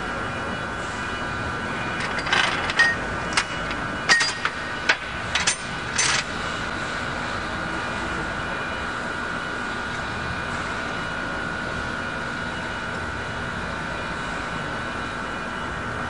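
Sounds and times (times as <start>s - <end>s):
workshop hum: 0.0s - 16.0s
metal tools clinking: 2.0s - 6.3s.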